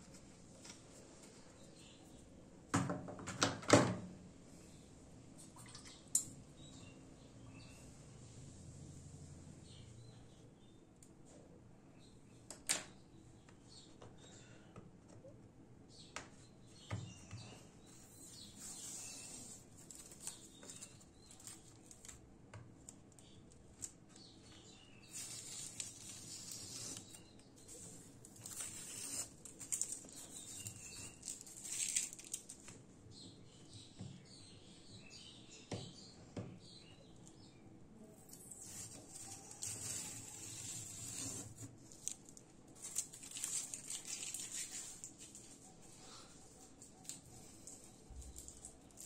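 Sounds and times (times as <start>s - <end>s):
masking tape peeling off paper: 25.1s - 32.6s, 38.3s - 45.4s.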